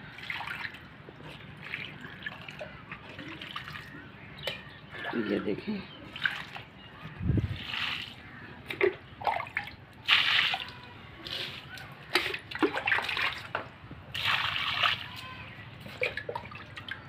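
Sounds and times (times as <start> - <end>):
water splashing onto soil: 7.6 - 16.6.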